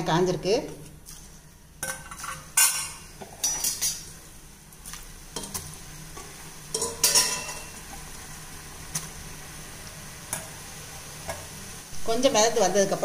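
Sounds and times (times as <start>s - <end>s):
deep-frying sizzling in oil: 0.0s - 13.0s
metal ladle clinking on pan: 6.7s - 7.7s.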